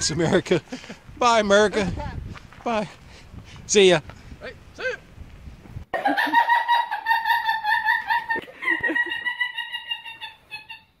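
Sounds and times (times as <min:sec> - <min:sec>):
high-pitched cartoon laughter: 0:06.0 - 0:11.0.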